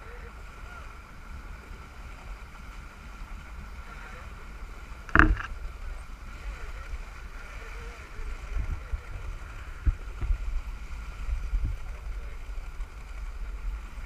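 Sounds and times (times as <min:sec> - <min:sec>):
boat engine drone: 0:00.0 - 0:14.0
dull low thumps: 0:05.1 - 0:05.5
wind on microphone: 0:05.1 - 0:14.0.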